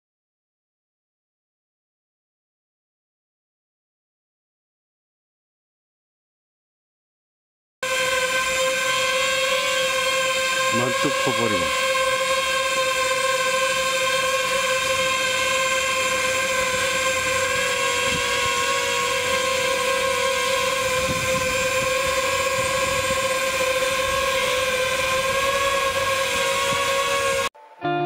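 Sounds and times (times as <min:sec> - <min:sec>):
drone propellers whining: 0:07.8 - 0:28.0.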